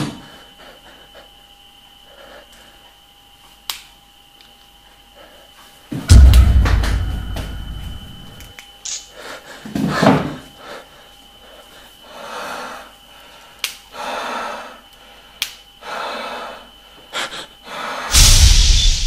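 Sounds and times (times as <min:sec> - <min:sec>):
person breathing heavily: 0:10.5 - 0:18.5.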